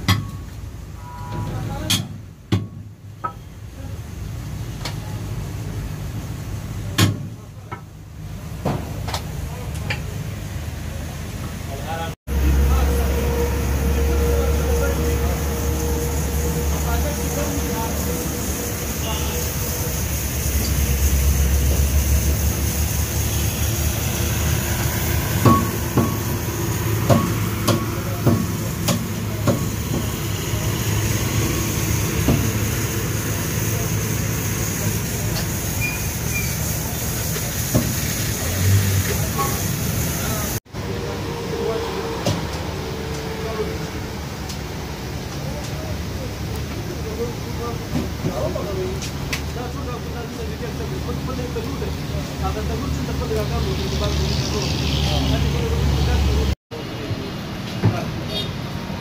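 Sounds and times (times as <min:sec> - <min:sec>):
steady low rumble: 0:12.3 - 0:33.9.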